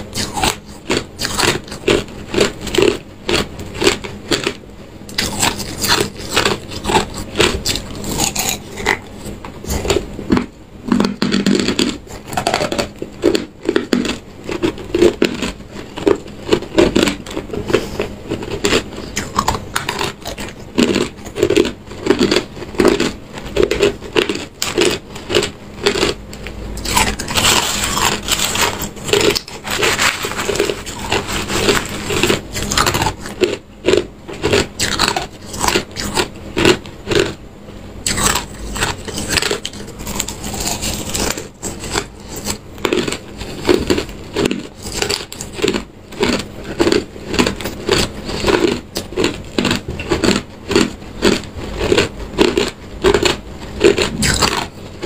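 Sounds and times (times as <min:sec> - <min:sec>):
ice crunched between teeth: 0:00.1 - 0:09.1, 0:09.7 - 0:26.2, 0:26.8 - 0:37.4, 0:38.0 - 0:54.8.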